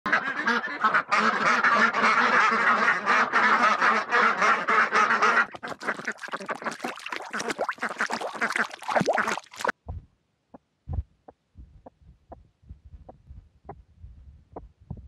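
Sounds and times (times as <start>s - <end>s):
ducks quacking loudly: 0.1s - 9.7s.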